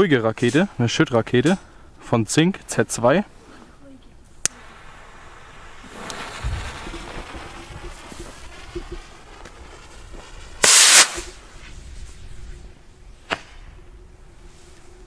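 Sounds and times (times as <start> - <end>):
firework fuse burning: 4.3 - 15.0
sharp crack: 4.4 - 11.5, 13.2 - 13.7
rocket whoosh lifting off: 4.5 - 13.8.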